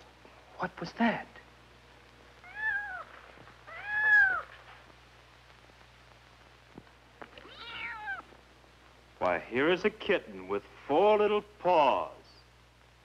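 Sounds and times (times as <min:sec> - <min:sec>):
kitten meowing: 0:02.4 - 0:03.1, 0:03.7 - 0:04.5, 0:07.4 - 0:08.2.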